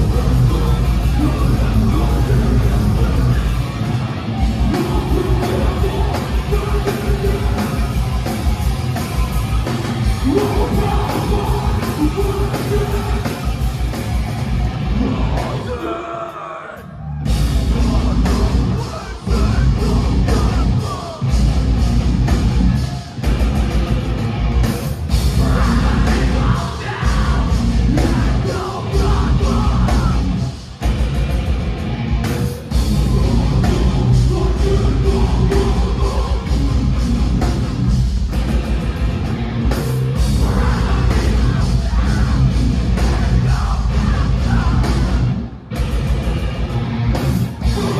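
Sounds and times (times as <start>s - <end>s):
shouted vocals: 0.0s - 13.7s, 14.8s - 21.6s, 25.2s - 30.6s, 40.2s - 45.5s, 46.7s - 47.9s
bass: 0.0s - 16.1s, 16.7s - 47.9s
distorted electric guitars: 0.0s - 47.9s
drums: 0.0s - 47.9s.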